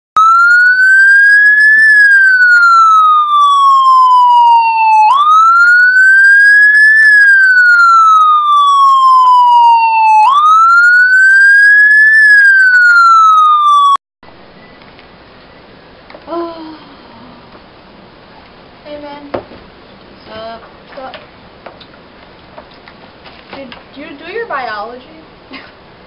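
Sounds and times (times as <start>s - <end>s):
police siren wailing: 0.2s - 14.0s.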